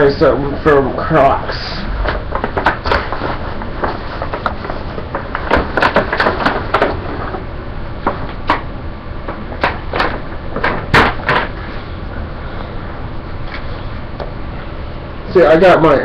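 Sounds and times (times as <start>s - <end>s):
plastic bag rustling: 1.9s - 6.7s
sharp knocks and bumps: 2.0s - 7.4s, 8.0s - 11.6s.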